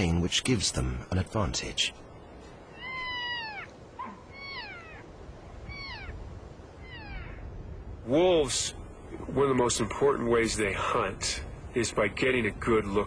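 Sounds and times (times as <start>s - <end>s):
faint background noise: 0.0s - 13.0s
elk calling: 2.6s - 7.7s.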